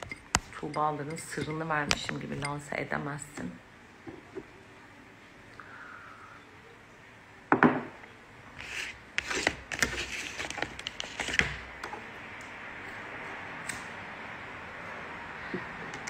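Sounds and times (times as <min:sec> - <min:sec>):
faint hiss: 0:05.4 - 0:06.8.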